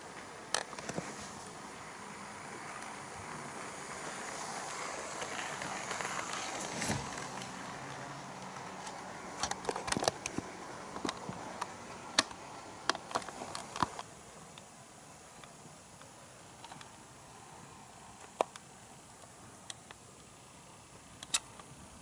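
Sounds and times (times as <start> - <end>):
model train rolling: 0.0 - 19.3
sharp clicks: 21.2 - 21.7.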